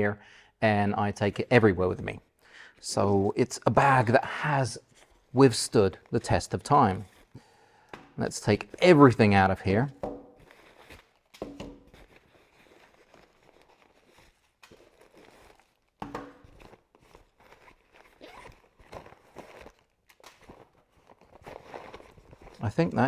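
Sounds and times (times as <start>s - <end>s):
plastic packages crinkling: 10.3s - 22.9s.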